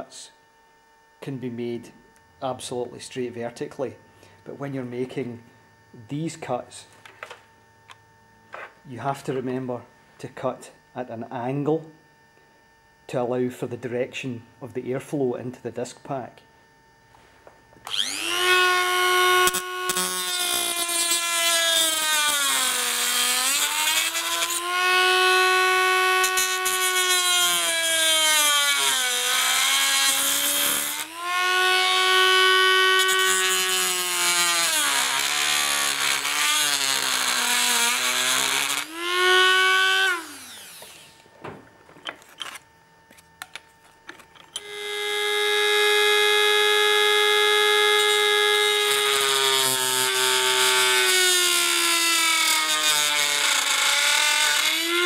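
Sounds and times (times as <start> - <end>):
rotary tool whining: 17.8 - 41.3, 42.0 - 55.0.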